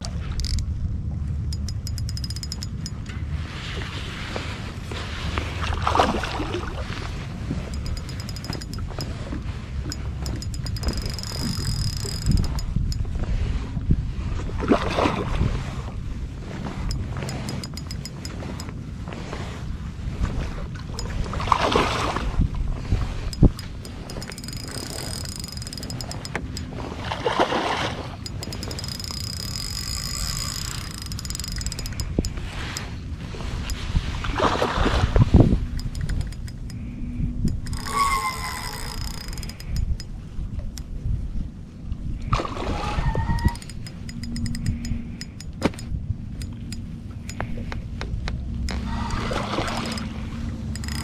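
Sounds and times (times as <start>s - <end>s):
steady low rumble: 0.0s - 5.9s
fishing reel buzzing and clicking: 0.1s - 0.7s, 1.4s - 3.1s, 7.5s - 13.1s, 16.6s - 18.8s, 21.0s - 21.2s, 23.0s - 26.9s, 28.2s - 33.0s, 33.6s - 33.8s, 35.5s - 41.0s, 42.9s - 51.0s.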